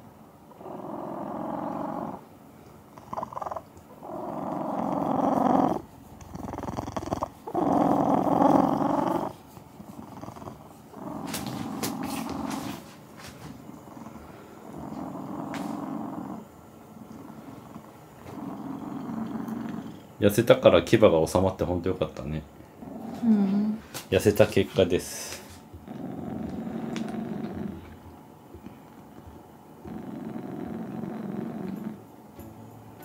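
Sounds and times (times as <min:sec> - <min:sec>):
cat purring loudly: 0:00.5 - 0:02.3, 0:02.9 - 0:32.1.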